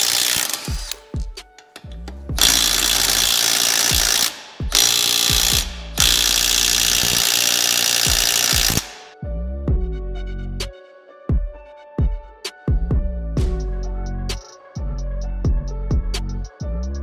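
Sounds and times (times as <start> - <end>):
electronic dance music: 2.4 - 9.2
wobbling bass line: 5.4 - 7.2, 9.3 - 10.7, 12.8 - 17.0.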